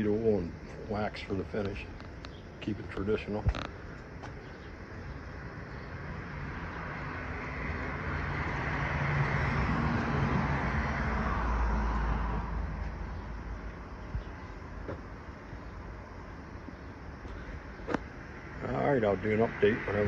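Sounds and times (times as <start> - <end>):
vehicle passing by: 5.9 - 16.2.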